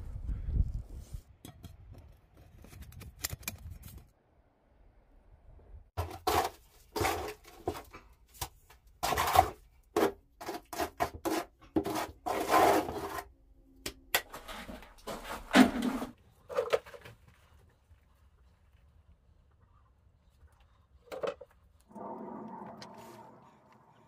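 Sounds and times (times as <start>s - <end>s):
trowel scraping gritty mortar: 9.0s - 13.3s.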